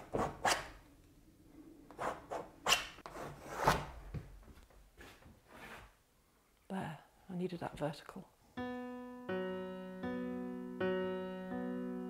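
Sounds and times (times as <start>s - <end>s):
tool rubbing across canvas: 1.9s - 4.0s.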